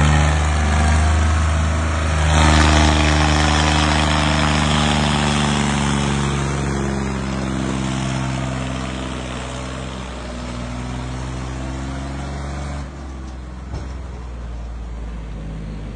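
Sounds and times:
tractor diesel engine running: 0.0s - 11.8s.

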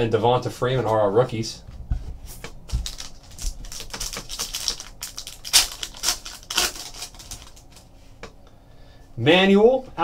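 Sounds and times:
foil wrapper crinkling torn open: 2.7s - 7.9s.

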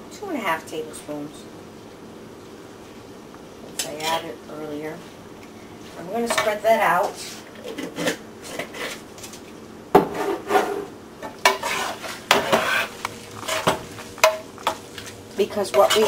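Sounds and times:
spoon scraping a skillet: 6.2s - 9.0s, 10.0s - 16.0s.

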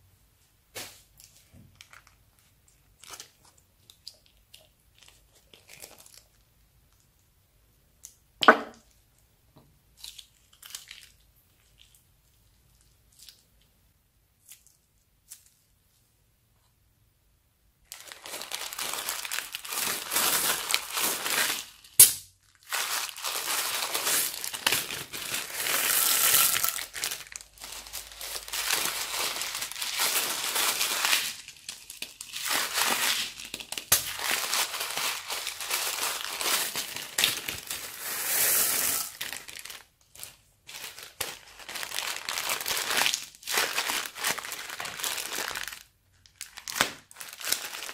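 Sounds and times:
plastic bags crinkling: 1.2s - 6.5s, 17.8s - 47.9s.

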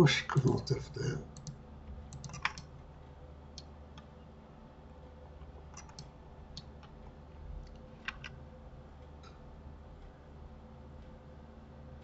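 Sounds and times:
faint steady hum: 0.0s - 12.0s
mouse and keyboard clicks: 1.4s - 2.7s, 5.7s - 6.7s.

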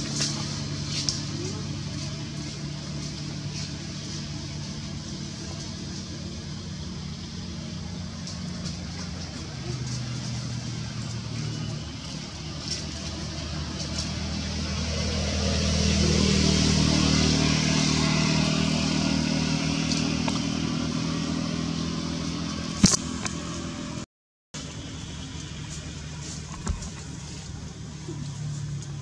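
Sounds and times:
vehicle engine running: 0.0s - 24.0s, 24.6s - 29.0s
sharp click: 22.8s - 23.4s.

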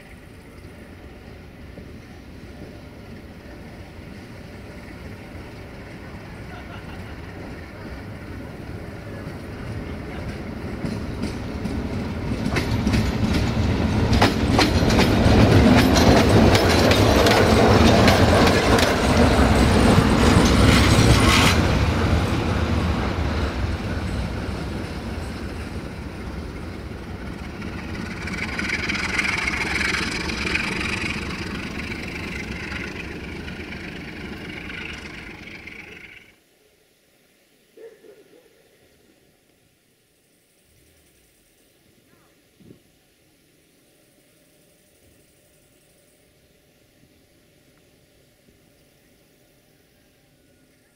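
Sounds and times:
diesel locomotive engine running: 0.0s - 36.3s
train wheels clicking over rail joints: 9.3s - 36.3s
high-pitched squeal: 23.8s - 36.3s.

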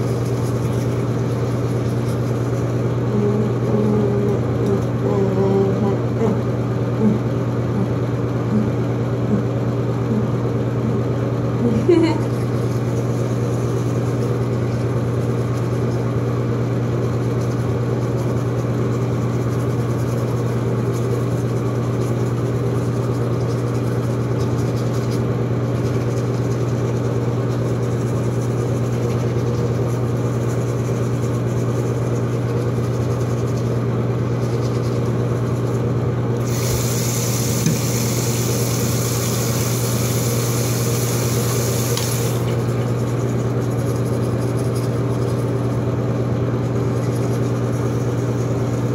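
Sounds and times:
bright hiss: 36.4s - 42.5s
small electric motor humming: 36.4s - 45.9s.

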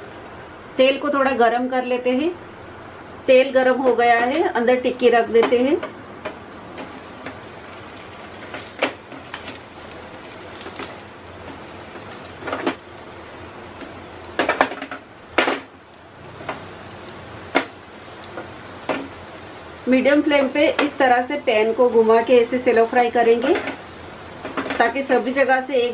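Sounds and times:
oil sizzling in a frying pan: 6.4s - 25.9s.

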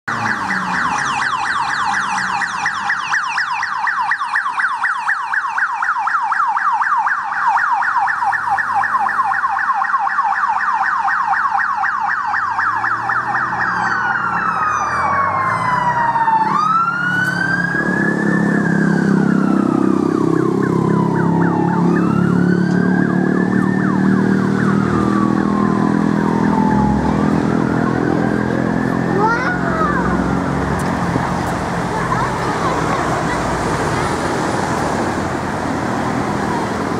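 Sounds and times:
vehicle engines droning: 0.0s - 3.6s, 11.4s - 36.9s
siren yelp and wail: 0.1s - 30.6s.

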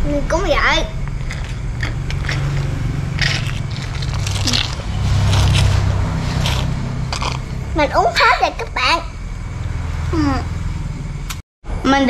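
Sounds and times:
steady low hum: 0.0s - 12.0s
foil pouch crinkling: 3.2s - 7.4s
child slurping through a straw: 3.2s - 7.5s.

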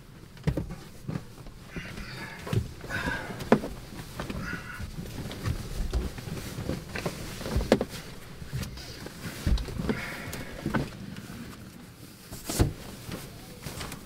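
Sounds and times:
knocks and rustling inside a car: 0.0s - 14.0s.

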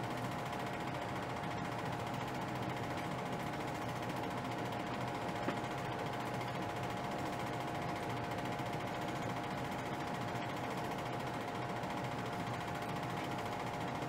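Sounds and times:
steady mechanical whir: 0.0s - 14.0s.

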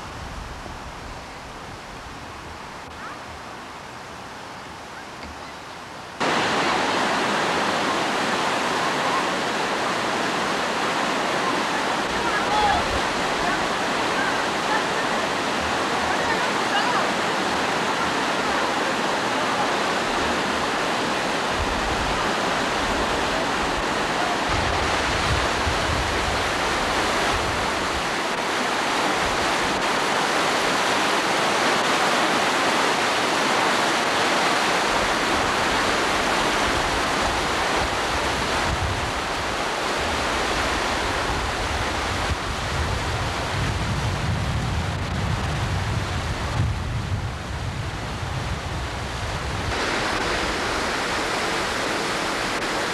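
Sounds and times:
wind rumbling on microphone: 0.0s - 18.6s, 19.9s - 31.9s, 34.8s - 52.9s
water rushing over weir: 0.0s - 52.9s.

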